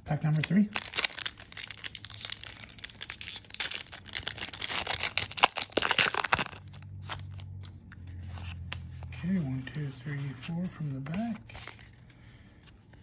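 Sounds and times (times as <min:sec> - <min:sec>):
foil wrapper crinkling and tearing: 0:00.2 - 0:07.6.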